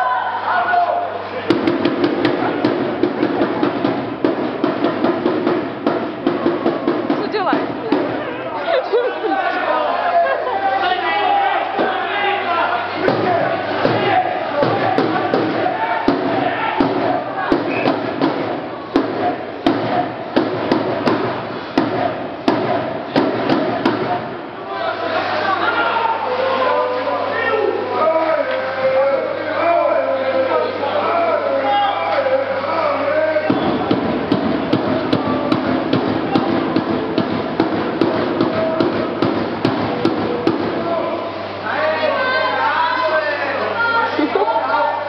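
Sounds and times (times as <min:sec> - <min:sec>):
spectators banging cheering beat: 0:00.0 - 0:09.9, 0:10.9 - 0:24.7, 0:32.0 - 0:41.6
crowd noise echoing: 0:00.0 - 0:45.0.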